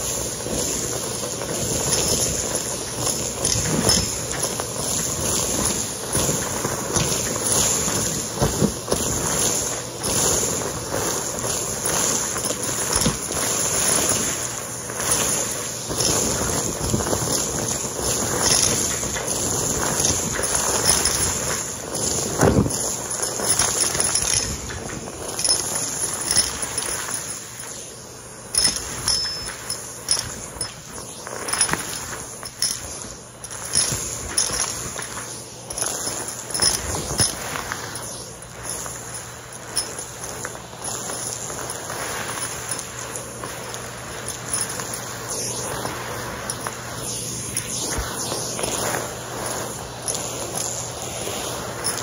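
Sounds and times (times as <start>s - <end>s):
debris rattling in vacuum tube: 0.0s - 52.0s
vacuum cleaner running: 0.0s - 52.0s.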